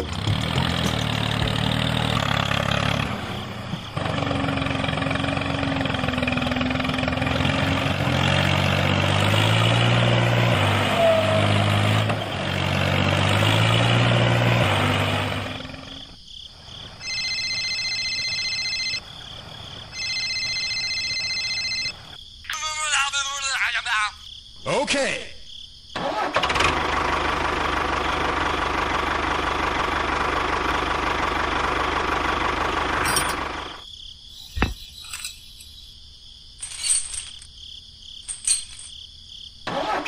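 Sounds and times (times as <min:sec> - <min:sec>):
tractor engine revving and straining: 0:00.0 - 0:20.6, 0:25.9 - 0:35.8, 0:36.6 - 0:37.6, 0:38.2 - 0:39.0, 0:39.6 - 0:40.0
electronic ringing tone: 0:17.0 - 0:19.0, 0:19.9 - 0:22.1.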